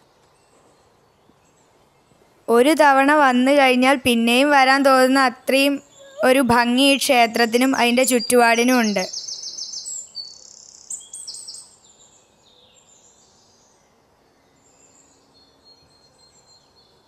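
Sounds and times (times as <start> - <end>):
birds chirping: 0.0 - 13.6.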